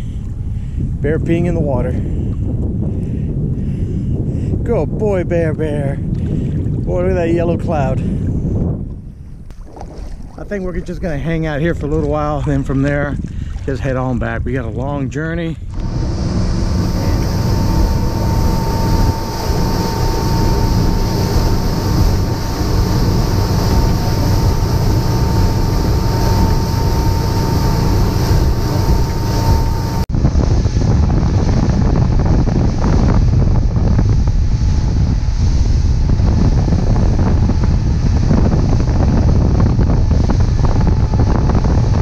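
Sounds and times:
wind buffeting microphone: 0.0 - 42.0
boat engine and hull noise: 15.6 - 30.1
rush of wake and spray: 15.7 - 30.9.

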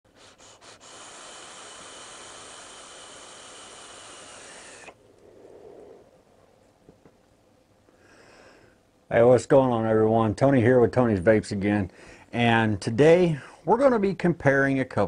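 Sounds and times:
person vaping puffs and exhaling: 0.1 - 6.1.

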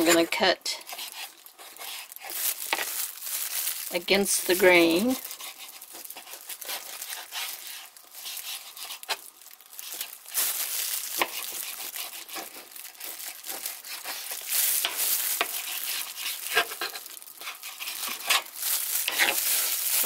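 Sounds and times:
plastic glove crinkling: 0.0 - 20.0
knife sawing through meat: 0.8 - 2.3, 5.2 - 9.2, 11.2 - 12.7, 13.5 - 14.4, 15.4 - 18.5.

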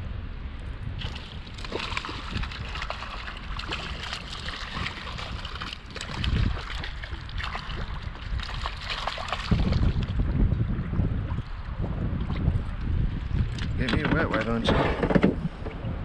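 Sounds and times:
wind rumble on microphone: 0.0 - 16.0
fish splashing in water: 1.0 - 10.1.

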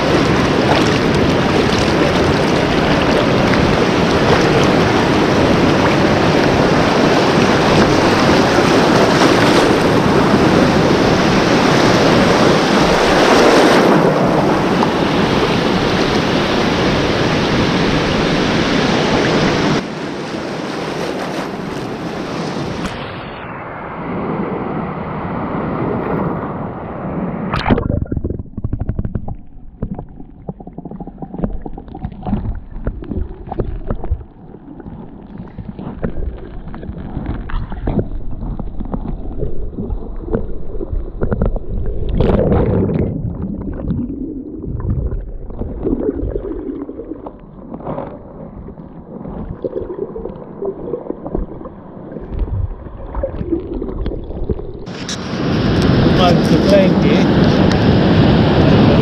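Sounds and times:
muffled underwater rumbling: 0.0 - 19.8, 25.9 - 59.0
surf breaking: 0.0 - 26.4, 27.4 - 59.0
dull underwater knocks: 27.6 - 34.5, 35.3 - 44.0, 51.0 - 54.6.

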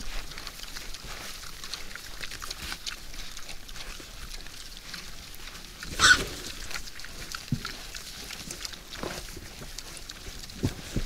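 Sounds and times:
boars crunching and chewing: 0.0 - 11.0
boar call: 5.9 - 6.5.

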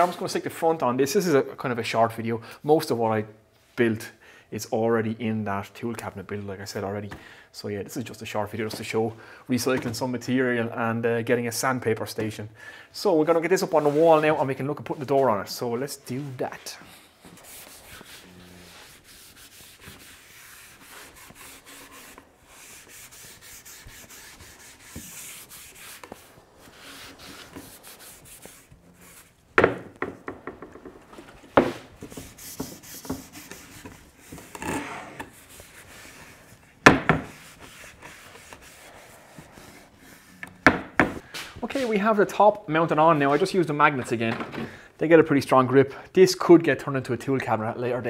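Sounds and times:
hand rubbing wooden door frame: 16.8 - 41.2
sharp knocks on wood: 29.6 - 31.0.

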